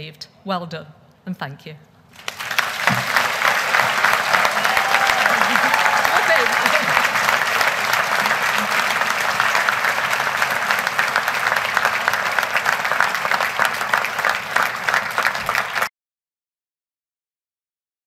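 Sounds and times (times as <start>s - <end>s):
audience applauding: 2.2s - 15.9s.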